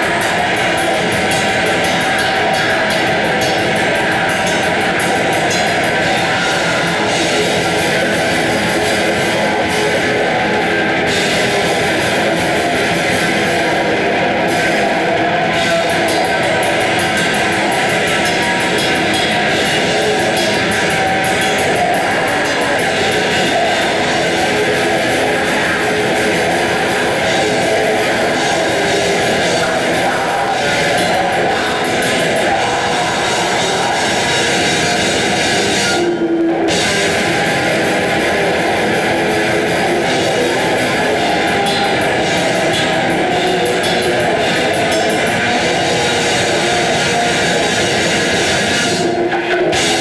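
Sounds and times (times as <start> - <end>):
distorted electric guitars: 0.0 - 50.0
drum kit: 0.0 - 50.0.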